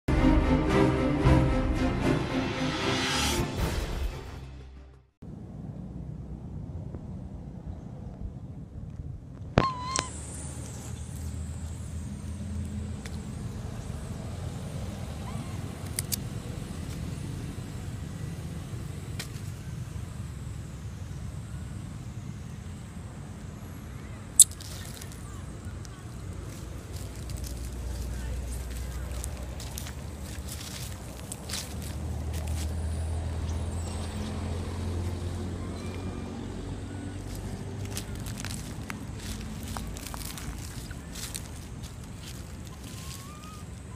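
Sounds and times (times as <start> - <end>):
engine humming: 4.7 - 43.9
low outdoor rumble: 5.2 - 43.9
faint high squeaks: 9.6 - 11.2, 15.1 - 15.7, 42.6 - 43.9.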